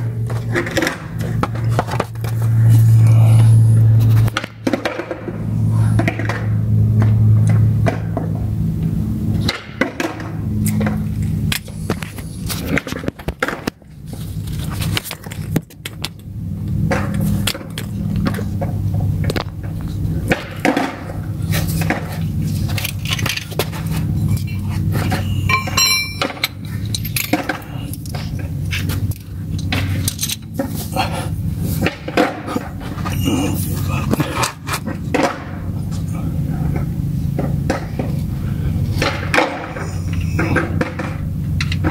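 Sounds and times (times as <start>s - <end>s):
tools clinking and scraping: 21.5s - 30.9s.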